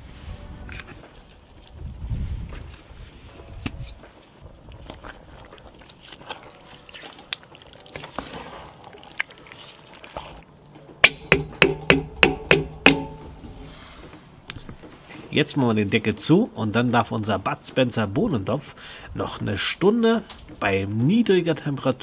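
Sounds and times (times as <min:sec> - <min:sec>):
wooden spoon stirring stew: 0:04.1 - 0:16.3
spoon knocking cast iron pot: 0:11.0 - 0:13.4.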